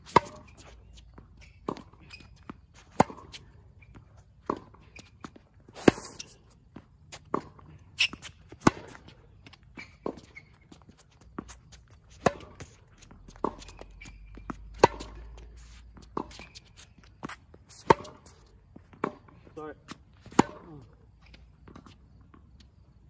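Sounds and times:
rackets striking tennis ball: 0:00.0 - 0:00.9, 0:01.5 - 0:06.4, 0:07.2 - 0:10.3, 0:11.2 - 0:19.3, 0:20.0 - 0:20.8
tennis ball bouncing: 0:00.0 - 0:22.5.

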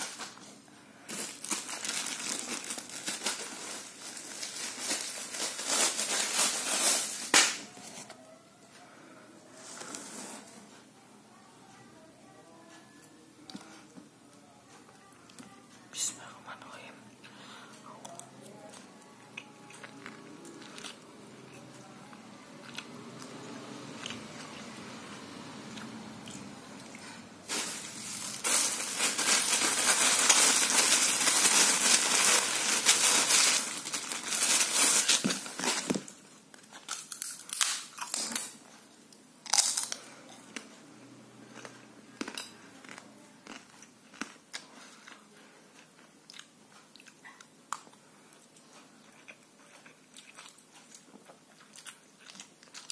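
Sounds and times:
plastic bag crinkling: 0:00.0 - 0:08.0, 0:27.4 - 0:38.6
eating and chewing: 0:17.8 - 0:24.8, 0:25.6 - 0:27.3, 0:35.5 - 0:52.9.

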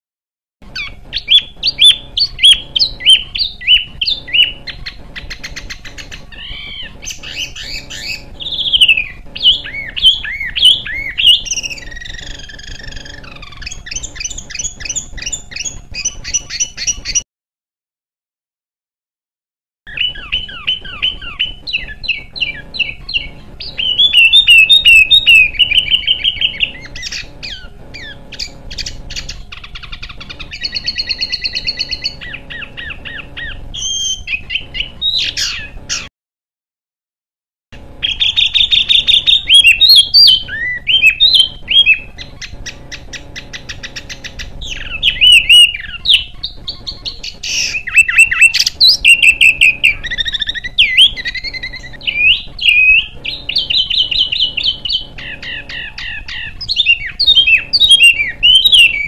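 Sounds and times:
songbird chirping and trilling: 0:00.6 - 0:17.2, 0:19.9 - 0:36.1, 0:37.8 - 0:59.0.

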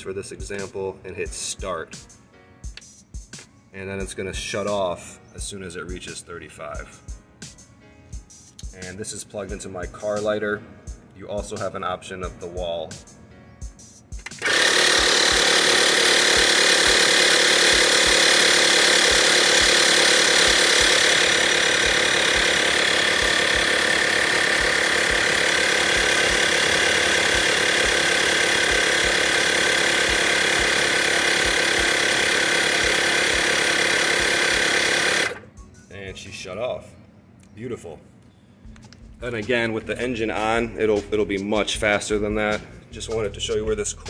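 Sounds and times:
tire inflator compressor running: 0:14.2 - 0:35.6.

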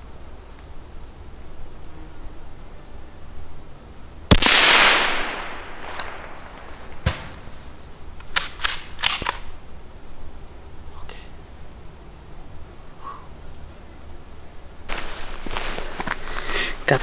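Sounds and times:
rifle shot with echo: 0:04.3 - 0:07.4
sharp knock: 0:07.0 - 0:07.4.

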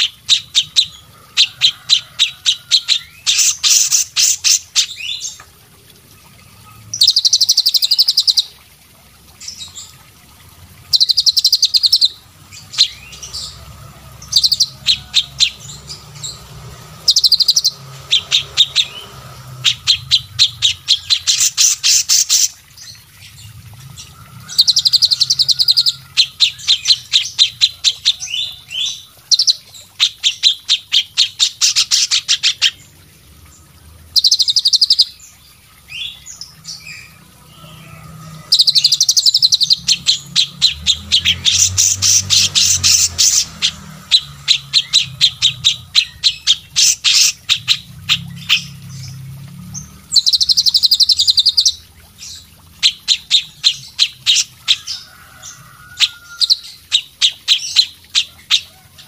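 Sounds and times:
songbird rattling calls: 0:10.9 - 0:32.9, 0:38.5 - 0:49.2.

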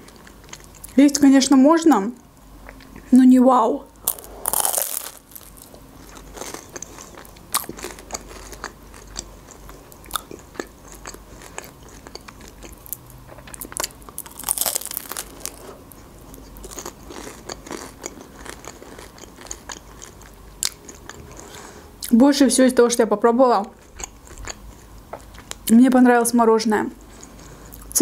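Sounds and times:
chewing crackles: 0:00.0 - 0:01.0, 0:04.0 - 0:21.7, 0:23.6 - 0:25.7
crunchy pastry bite: 0:04.0 - 0:21.1.

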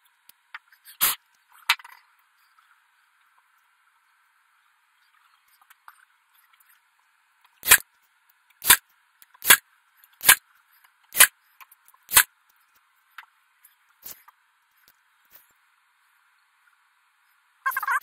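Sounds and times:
nail gun firing into wood: 0:07.6 - 0:07.8.

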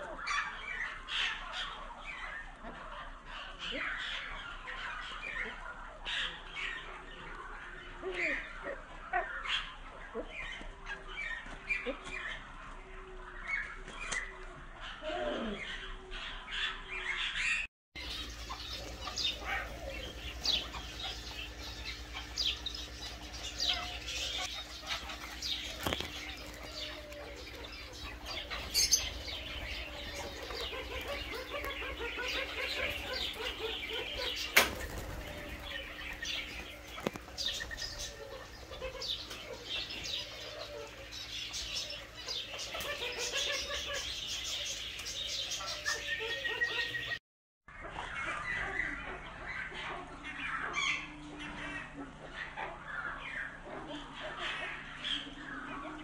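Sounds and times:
birds chirping and twittering: 0:00.0 - 0:56.0
steady low hum: 0:18.0 - 0:46.1.

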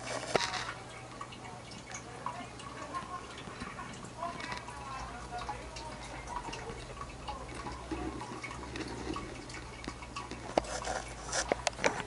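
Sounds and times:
aquarium water trickling: 0:00.0 - 0:12.0
low electrical hum: 0:00.0 - 0:12.0
small clicks and ticks: 0:00.3 - 0:12.0.

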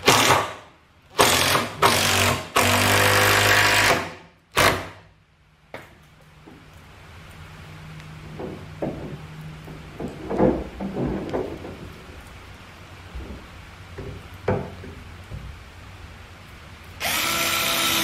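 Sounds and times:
light knocks and clunks: 0:08.2 - 0:12.3, 0:13.1 - 0:15.6.

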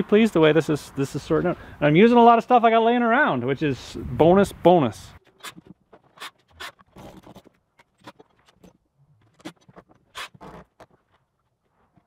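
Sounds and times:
scraping or rustling: 0:05.2 - 0:12.0.

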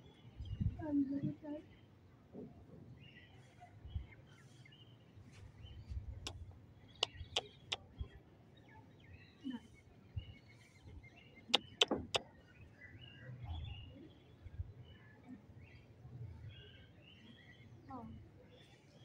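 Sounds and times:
small birds chirping: 0:03.0 - 0:19.0
sharp clicks: 0:11.6 - 0:12.2.

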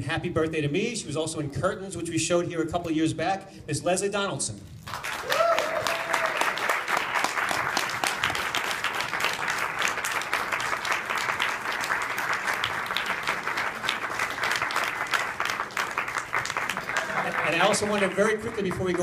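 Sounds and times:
audience applauding: 0:04.8 - 0:19.0.

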